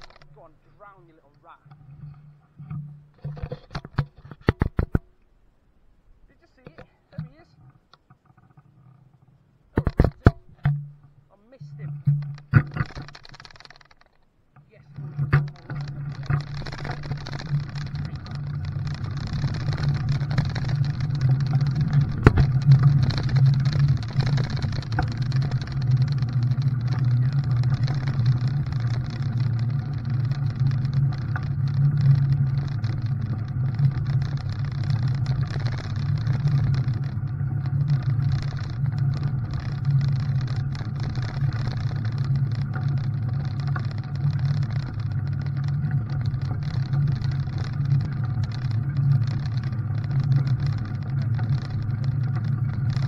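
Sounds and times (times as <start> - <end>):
vehicle engine running: 15.2 - 53.0.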